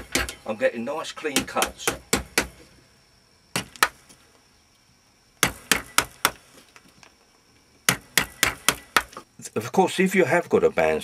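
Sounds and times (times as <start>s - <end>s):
mallet striking chisel: 3.6s - 4.0s, 5.4s - 6.4s, 7.9s - 9.1s.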